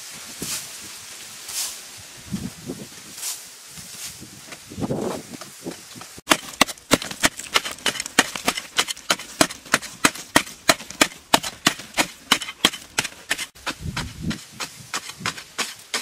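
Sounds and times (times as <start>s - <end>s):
digging tool striking hard earth: 6.2s - 16.0s.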